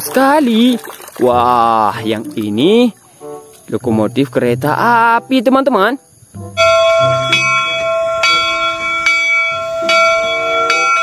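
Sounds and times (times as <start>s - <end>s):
locomotive bell ringing: 6.5s - 11.0s.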